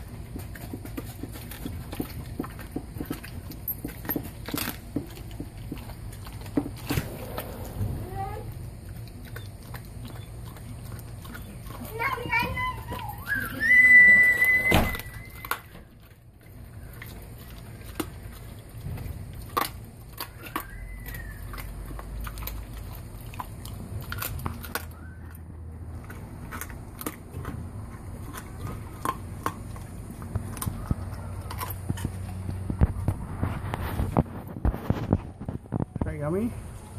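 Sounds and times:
teeth cracking on bone: 0.0 - 7.0, 8.5 - 36.0
high squeal: 12.6 - 15.8.

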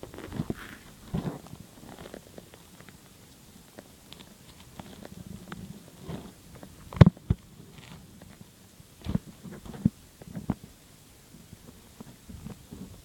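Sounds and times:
turtle moving in sand: 0.0 - 3.2.

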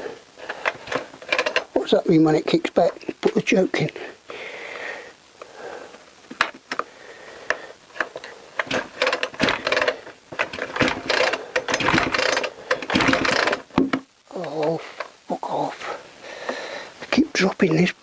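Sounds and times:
chainsaw engine turning over: 0.4 - 1.8, 8.0 - 14.6
chainsaw clicks: 0.5 - 1.8, 7.5 - 13.8
chainsaw recoil starter pulls: 0.5 - 1.8, 8.0 - 13.8.

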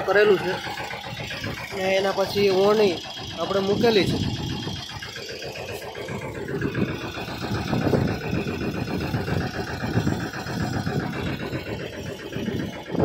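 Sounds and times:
tractor engine idling: 0.0 - 13.0.

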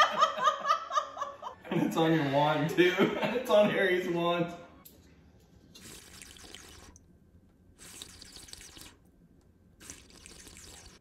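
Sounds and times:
faint wet liquid bursts: 5.7 - 7.0, 7.8 - 9.1, 9.8 - 11.0.

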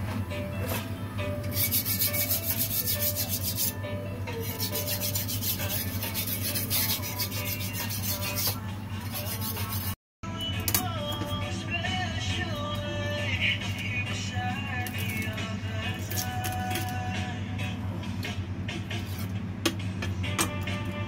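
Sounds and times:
background music with beat: 0.0 - 21.0
rhythmic scraping percussion: 0.6 - 10.0.

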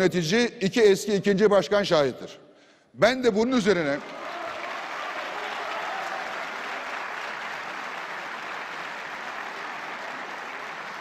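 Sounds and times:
large audience applauding: 3.8 - 11.0.

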